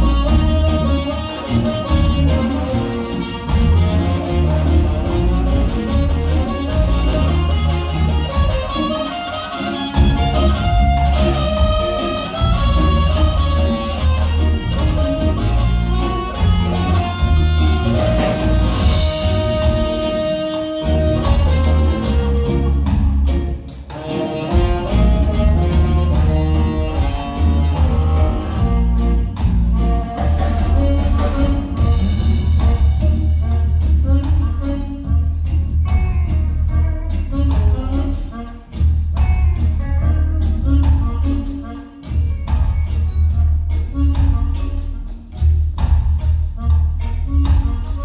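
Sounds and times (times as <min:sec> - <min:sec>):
harmonica lead: 0:00.0 - 0:48.0
live band playing ska: 0:00.0 - 0:48.0.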